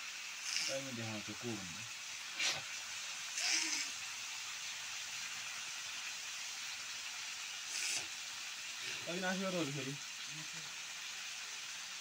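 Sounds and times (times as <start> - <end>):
chicken frying with sizzle: 0.0 - 12.0
brief loud hisses: 2.4 - 2.7, 7.7 - 8.1.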